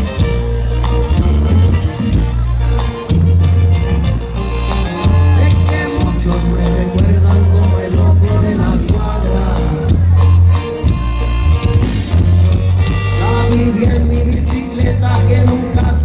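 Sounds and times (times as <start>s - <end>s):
live band music: 0.0s - 16.0s
person singing: 4.8s - 10.5s, 13.1s - 16.0s.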